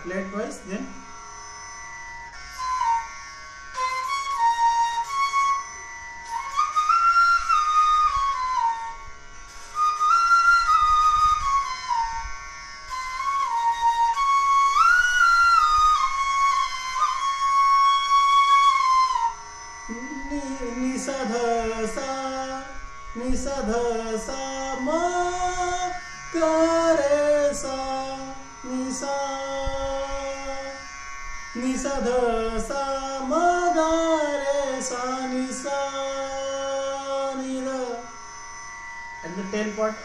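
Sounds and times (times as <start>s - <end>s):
man singing: 19.9s - 30.8s, 31.6s - 38.1s.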